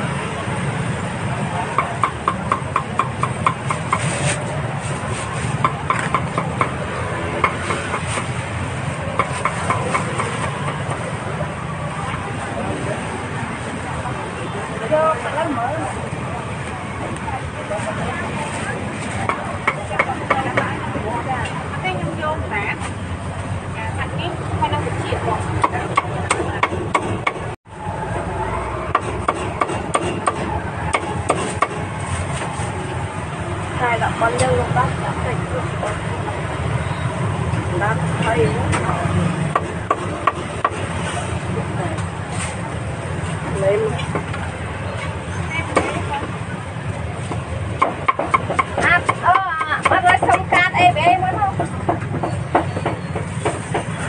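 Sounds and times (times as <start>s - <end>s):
street noise: 0.0s - 54.0s
cleaver chopping meat: 28.9s - 31.8s.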